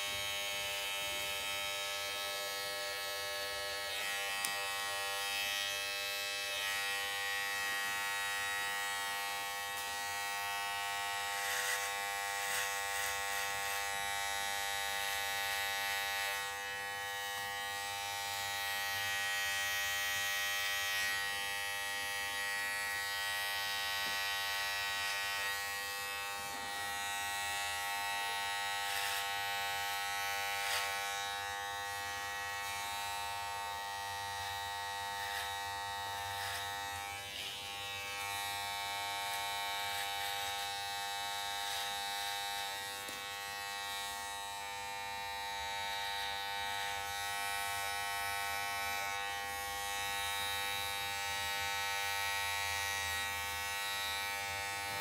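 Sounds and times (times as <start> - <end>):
electric hair clipper buzzing: 0.0 - 55.0
clipper scratching through hair: 3.9 - 5.5, 11.0 - 16.5, 26.5 - 31.4, 34.5 - 44.2.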